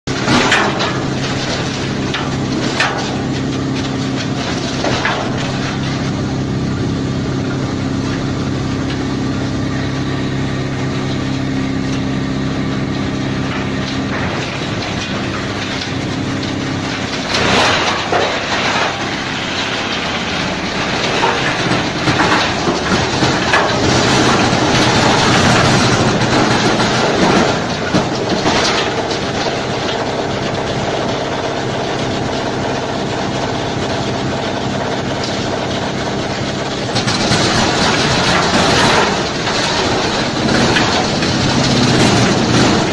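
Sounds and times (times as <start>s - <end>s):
shredder grinding wood: 0.1s - 42.9s.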